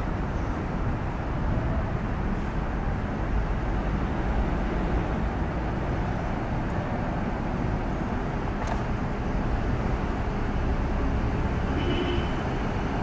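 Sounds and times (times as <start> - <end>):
diesel bus engine rumbling: 0.0 - 13.0.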